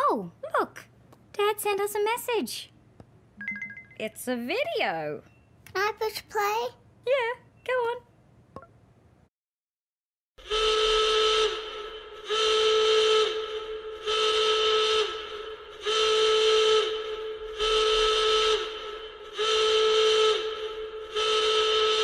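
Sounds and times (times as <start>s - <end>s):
horn-like alarm tone blasts: 10.4s - 22.0s.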